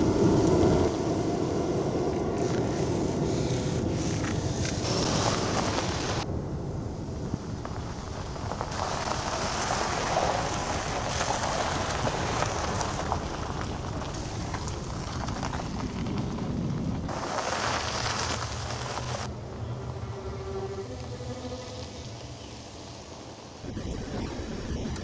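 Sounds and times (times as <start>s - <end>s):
tyres crunching on gravel: 0.0s - 6.2s, 7.4s - 19.3s.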